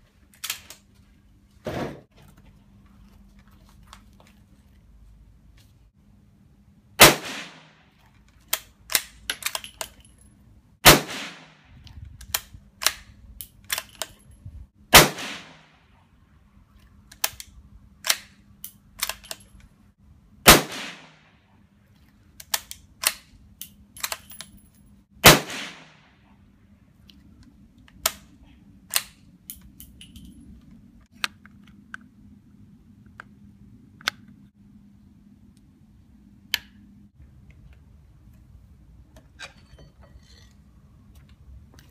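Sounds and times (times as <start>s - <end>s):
rifle shots with echo: 7.0s - 7.8s, 10.8s - 11.6s, 14.9s - 15.7s, 20.5s - 21.3s, 25.2s - 26.1s.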